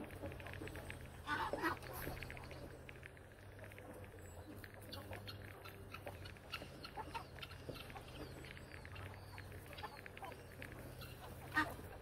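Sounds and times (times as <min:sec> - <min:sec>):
poultry peeping and clucking: 0:00.0 - 0:12.0.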